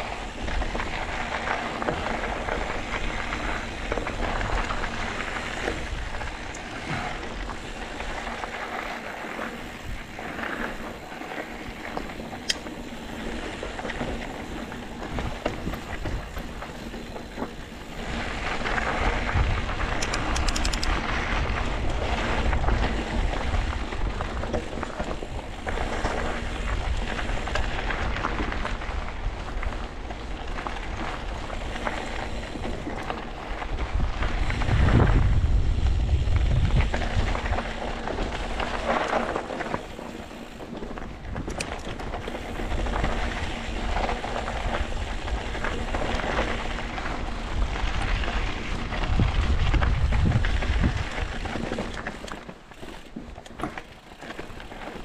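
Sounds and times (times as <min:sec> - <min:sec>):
tyres rolling over rough trail: 0:00.0 - 0:55.0
wind buffeting microphone: 0:09.5 - 0:53.0
sharp click: 0:20.0 - 0:20.9.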